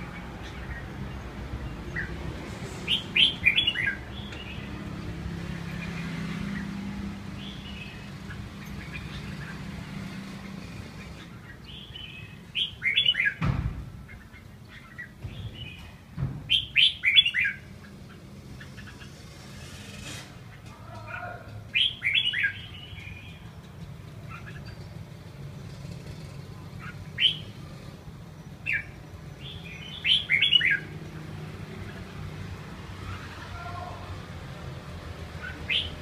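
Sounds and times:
bird singing chirpy notes: 0.0s - 13.4s, 14.0s - 19.6s, 21.7s - 25.8s, 26.6s - 31.1s.

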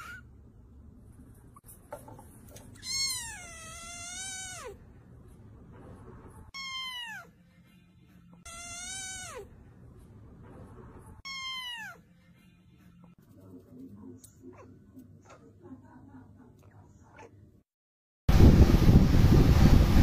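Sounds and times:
cat meowing: 2.8s - 4.8s, 6.5s - 7.3s, 8.4s - 9.5s, 11.2s - 12.0s.

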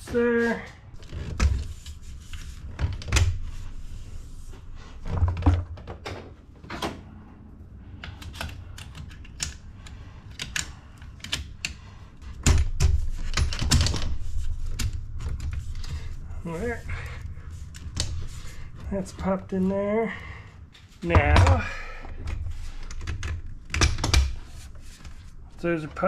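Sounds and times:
heavy thumps: 21.0s - 22.6s.

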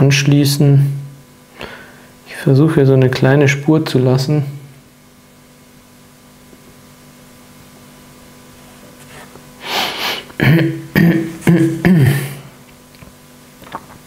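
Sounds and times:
man sharp breath in: 1.6s - 2.2s, 9.6s - 10.3s.

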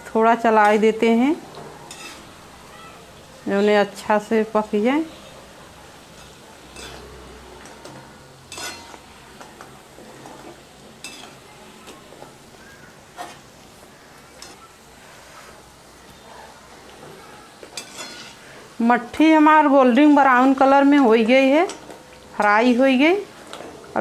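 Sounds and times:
frying in hot oil: 0.0s - 24.0s
spoon scraping and clinking pan: 1.8s - 2.4s, 6.2s - 9.1s, 10.2s - 11.4s, 17.7s - 18.4s.

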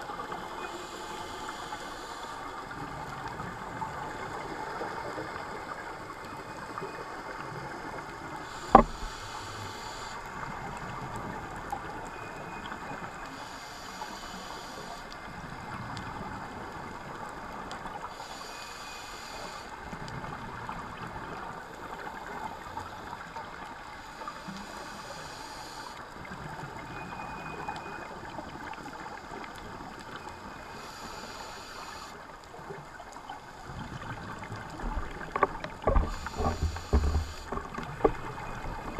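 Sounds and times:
regulator breathing hiss: 0.7s - 2.6s, 8.5s - 10.2s, 13.4s - 15.1s, 18.1s - 19.8s, 24.1s - 26.0s, 30.7s - 32.2s.

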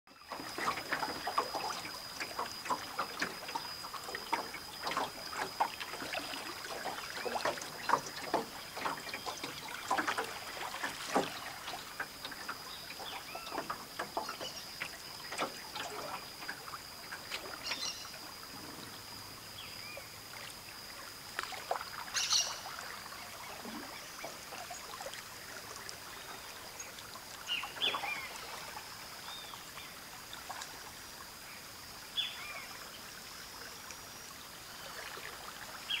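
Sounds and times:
paddle strokes in water: 0.1s - 36.0s
birds calling quietly: 6.6s - 16.2s, 17.1s - 18.3s, 22.0s - 25.0s, 25.8s - 30.0s.

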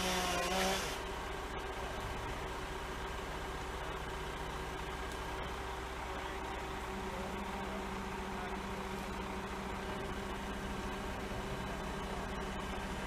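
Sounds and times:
truck engine humming: 0.0s - 13.0s.

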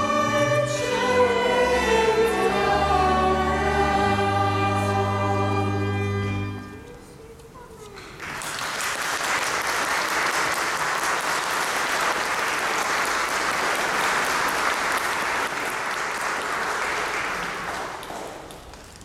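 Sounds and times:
audience applauding: 8.0s - 19.0s.

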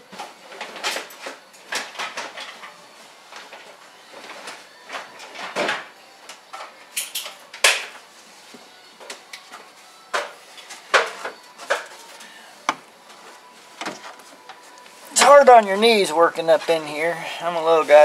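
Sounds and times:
tools clicking and rattling: 6.6s - 7.9s.

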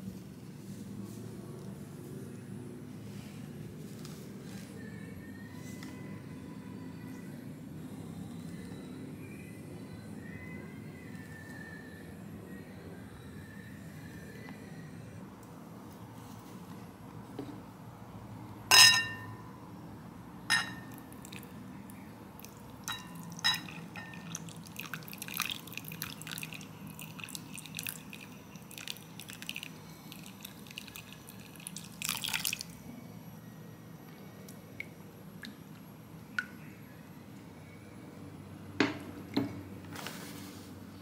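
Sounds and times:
milk pouring and splashing: 23.2s - 32.8s.

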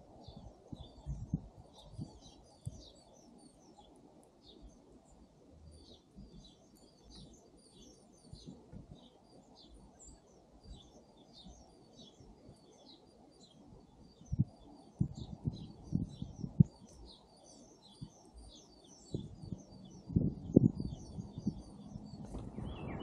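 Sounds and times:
songbirds chirping: 0.0s - 23.0s
low background rumble: 19.1s - 23.0s.

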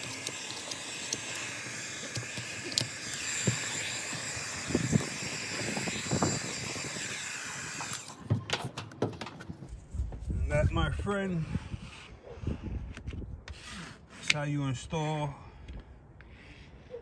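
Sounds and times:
heat gun blowing: 0.0s - 8.2s.

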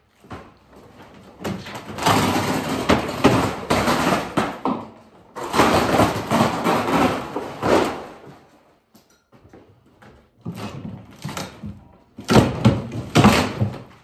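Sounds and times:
heavy wooden door scraping floor: 0.0s - 8.5s.

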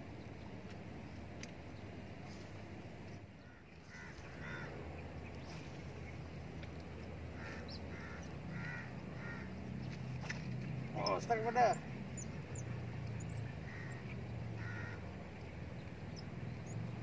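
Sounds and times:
steady low hum: 0.0s - 17.0s
bird calling: 3.4s - 6.2s, 7.3s - 16.8s.

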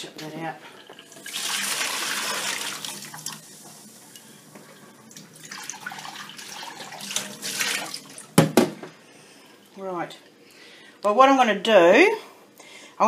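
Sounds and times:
tap water running into sink: 0.2s - 8.8s.

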